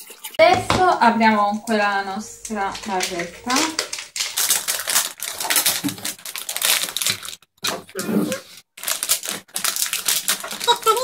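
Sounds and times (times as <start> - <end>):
wrapper crinkling and tearing: 2.4 - 11.0.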